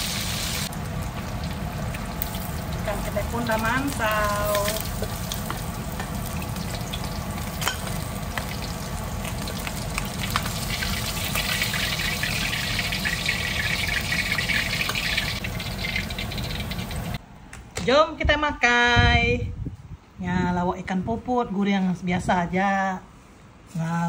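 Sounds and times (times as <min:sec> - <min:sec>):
fish frying in hot oil: 0:00.0 - 0:17.2.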